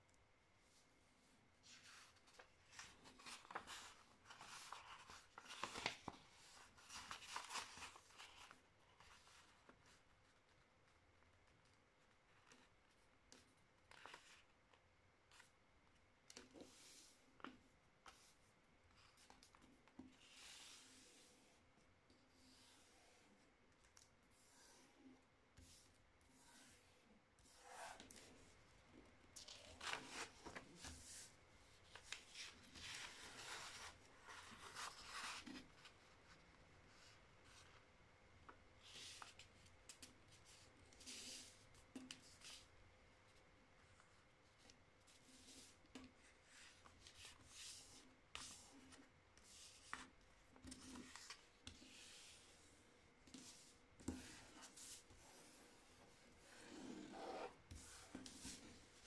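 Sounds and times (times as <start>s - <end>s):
paper being folded by hand: 1.6s - 21.5s, 29.3s - 42.7s, 43.3s - 59.0s.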